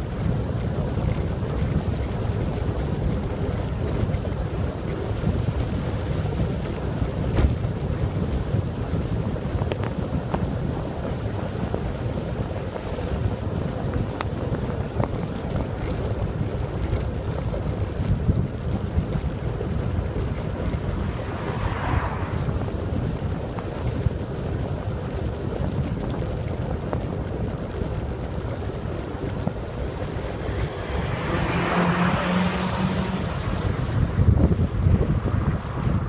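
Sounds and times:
road rumble and wind noise: 0:00.0 - 0:36.0
car overtaking: 0:20.4 - 0:23.6, 0:28.0 - 0:36.0.

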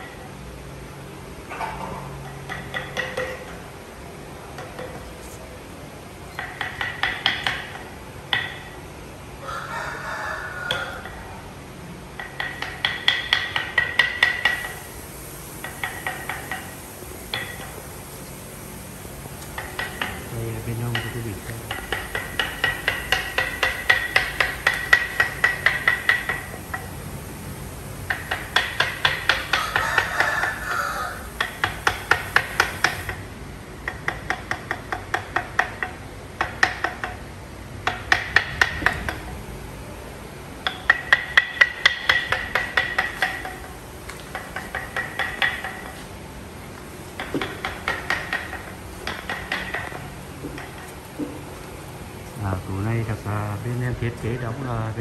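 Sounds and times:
rapid ringing hammering: 0:02.2 - 0:03.8, 0:05.9 - 0:08.9, 0:12.1 - 0:37.2, 0:37.8 - 0:46.3, 0:46.9 - 0:54.6.

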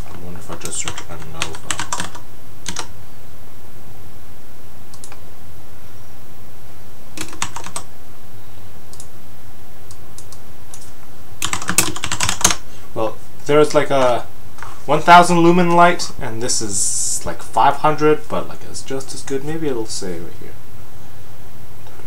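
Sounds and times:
keyboard typing: 0:00.0 - 0:02.9, 0:04.9 - 0:05.2, 0:07.2 - 0:07.9, 0:09.9 - 0:12.6.

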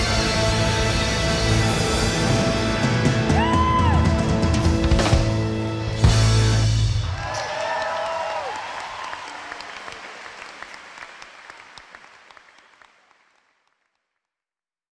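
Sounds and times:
audience applauding: 0:07.0 - 0:14.1.

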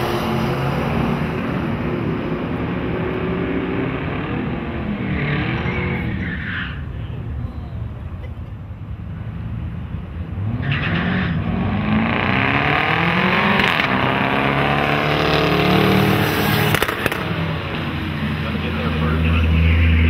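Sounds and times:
drag racing engines revving: 0:00.0 - 0:08.0, 0:08.7 - 0:20.0.

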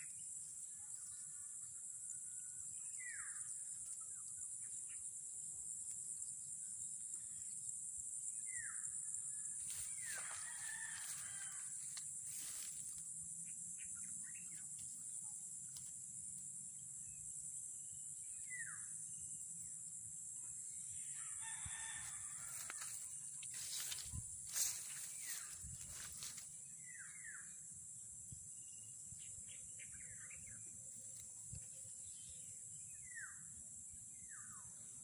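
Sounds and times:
rooster crowing: 0:10.1 - 0:12.0, 0:21.1 - 0:23.0.

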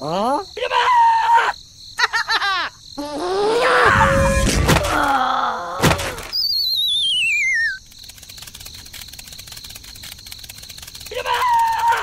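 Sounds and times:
descending warbling whistle: 0:06.3 - 0:07.8.

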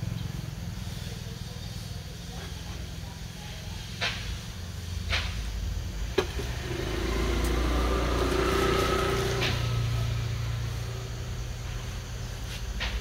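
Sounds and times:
motor scooter passing: 0:05.9 - 0:12.1.

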